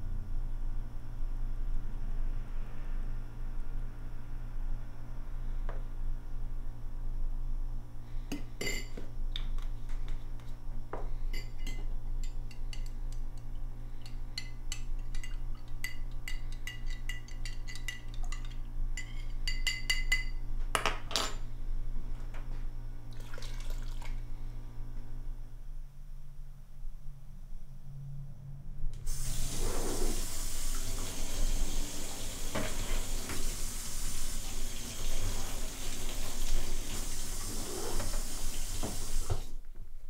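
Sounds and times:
steady low hum: 0:00.0 - 0:23.2, 0:24.0 - 0:29.3
metal spoon clinking in glass: 0:08.6 - 0:09.0, 0:11.4 - 0:20.4
liquid pouring: 0:23.1 - 0:24.2.

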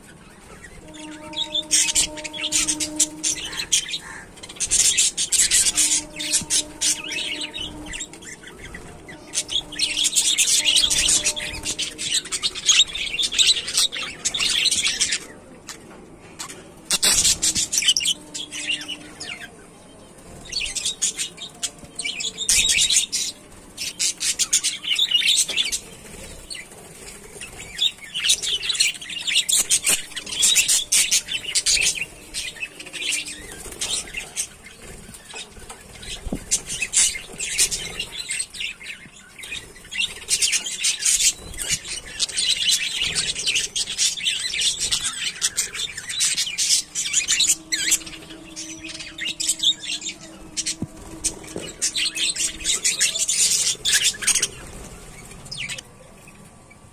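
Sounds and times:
flock of budgerigars chirping: 0:00.0 - 0:56.9.

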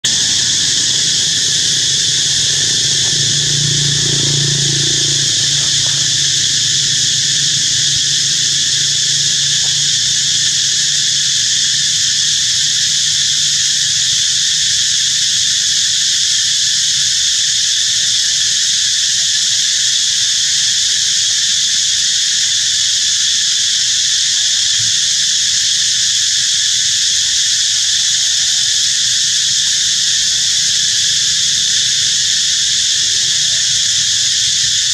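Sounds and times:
faint low hum: 0:00.0 - 0:10.6
insects buzzing: 0:00.0 - 0:34.9.

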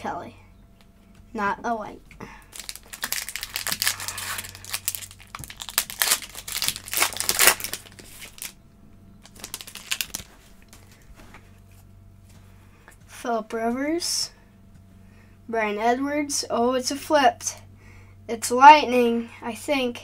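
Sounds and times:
foil wrapper crinkling: 0:02.5 - 0:08.6, 0:09.2 - 0:11.0.

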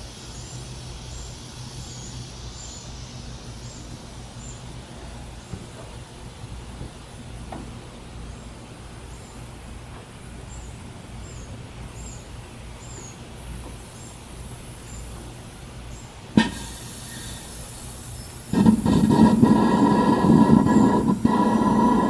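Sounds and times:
battery venting hiss with whistle: 0:00.0 - 0:06.7, 0:11.2 - 0:22.0.

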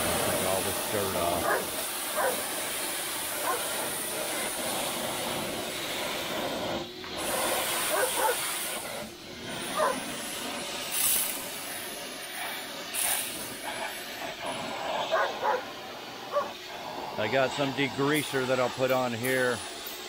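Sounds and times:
pressure washer spray hissing: 0:00.0 - 0:20.0.

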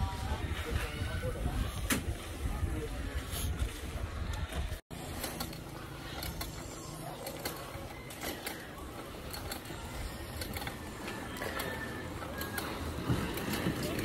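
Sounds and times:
low rumble of bicycle riding: 0:00.0 - 0:14.0
bicycle parts clicking and rattling: 0:04.3 - 0:14.0.

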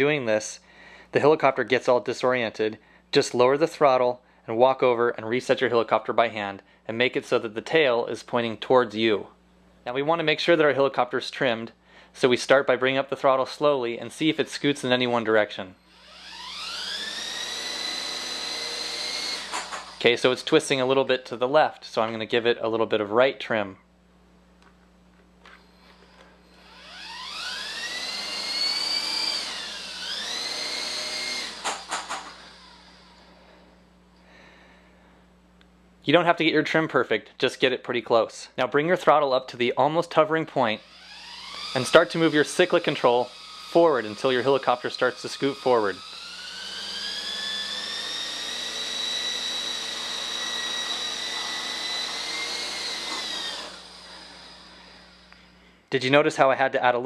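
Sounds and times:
rc helicopter rotor whine: 0:15.8 - 0:20.3, 0:25.4 - 0:33.8, 0:40.6 - 0:55.6
quick clicks: 0:31.4 - 0:32.4.

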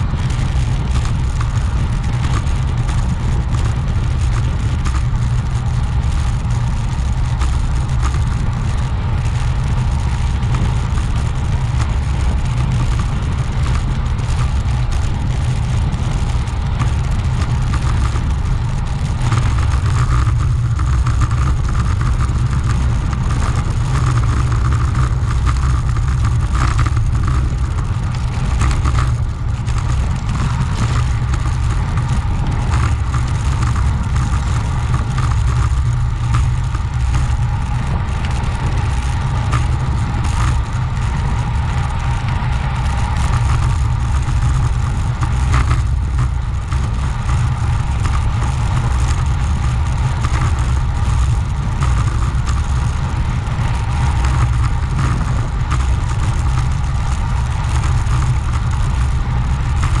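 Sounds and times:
rolling road noise: 0:00.0 - 1:00.0
wind rush: 0:00.0 - 1:00.0.

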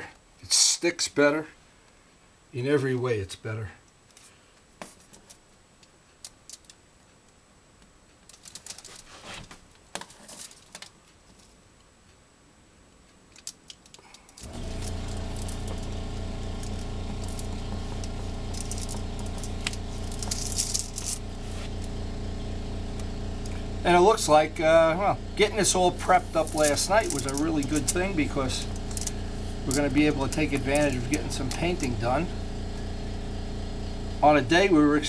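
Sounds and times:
tape pulled over crinkly foil: 0:08.3 - 0:11.5, 0:13.4 - 0:21.9, 0:25.7 - 0:31.9
machine humming: 0:14.4 - 0:35.0.

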